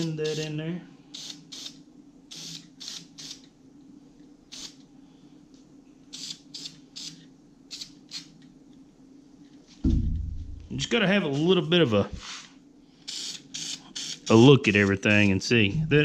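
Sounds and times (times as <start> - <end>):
steady low hum: 0.0 - 16.0
spray paint can hissing: 1.2 - 3.4, 4.5 - 4.8, 13.1 - 14.3.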